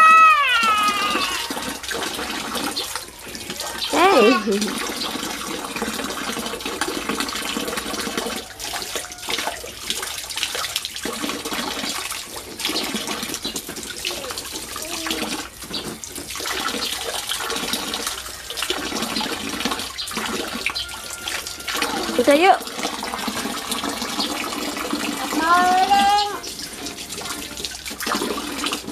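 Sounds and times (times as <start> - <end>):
child splashing through water: 0.0 - 5.4
water spraying into pool: 0.0 - 28.9.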